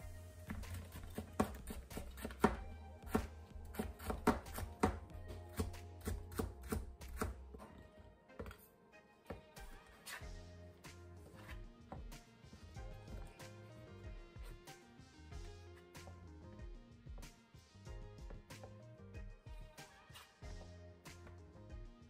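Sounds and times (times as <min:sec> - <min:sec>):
knife slicing carrot on plastic board: 0:00.4 - 0:07.7, 0:09.3 - 0:10.4, 0:11.2 - 0:12.2, 0:12.9 - 0:13.7, 0:14.4 - 0:14.8.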